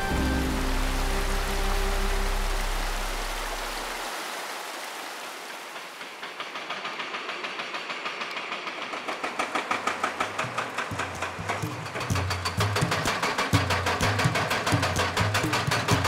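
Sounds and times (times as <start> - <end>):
rushing mountain stream: 0.0 - 7.1
hydraulic rock breaker knocking: 9.0 - 16.0.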